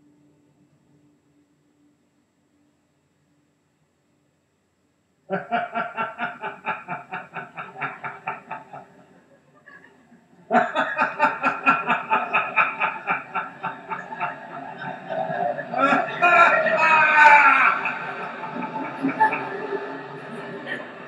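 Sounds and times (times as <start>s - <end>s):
group of people laughing: 5.3s - 21.0s.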